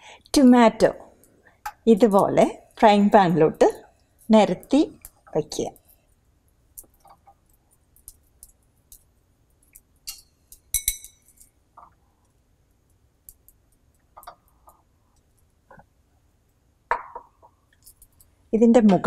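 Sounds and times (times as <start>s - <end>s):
tomato slices clinking in frying pan: 10.0s - 11.4s.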